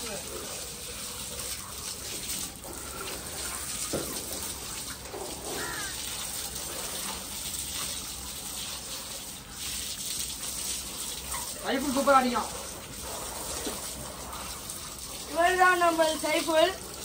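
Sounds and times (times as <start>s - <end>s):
water spraying from hose: 0.0s - 17.0s.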